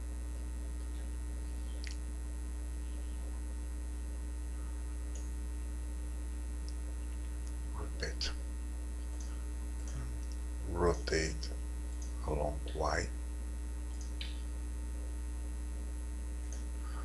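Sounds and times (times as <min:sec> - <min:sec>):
electrical mains hum: 0:00.0 - 0:17.0
faint clicks: 0:01.8 - 0:02.0, 0:05.1 - 0:05.3, 0:09.0 - 0:10.4, 0:13.9 - 0:14.5.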